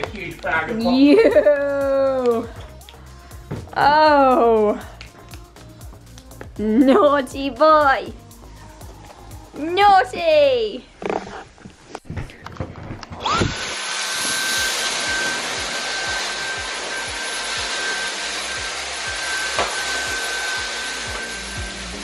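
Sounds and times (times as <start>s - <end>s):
vacuum cleaner motor whine: 13.1s - 22.0s
suction hiss: 13.2s - 22.0s.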